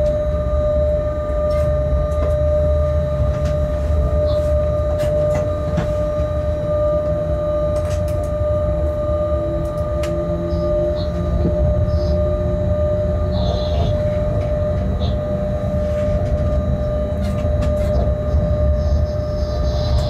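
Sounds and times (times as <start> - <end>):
high whine: 0.0 - 20.0
train running gear rumble: 0.0 - 20.0.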